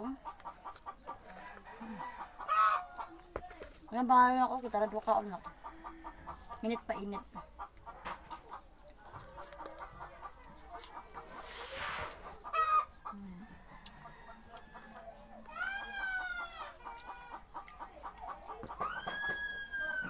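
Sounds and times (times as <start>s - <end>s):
chickens clucking: 0.0s - 20.0s
rooster crowing: 1.5s - 3.0s
short burst of hiss: 11.5s - 12.2s.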